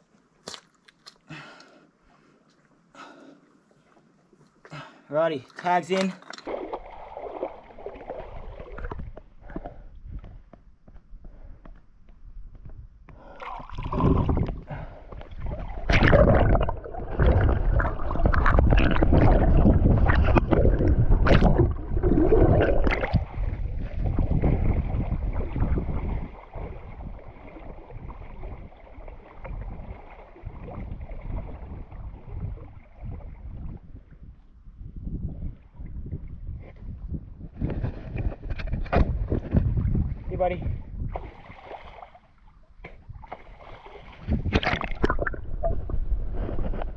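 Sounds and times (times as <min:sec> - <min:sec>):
seawater splashing: 0:05.4 - 0:09.1.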